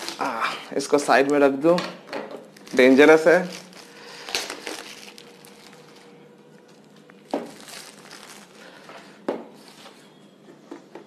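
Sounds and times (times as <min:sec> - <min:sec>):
plastic wrap crinkling: 0:02.5 - 0:10.0.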